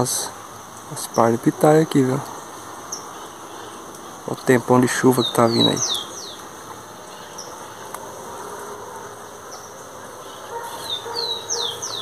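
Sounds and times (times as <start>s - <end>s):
steady background hiss: 0.0s - 12.0s
birds whistling falling notes: 9.5s - 12.0s.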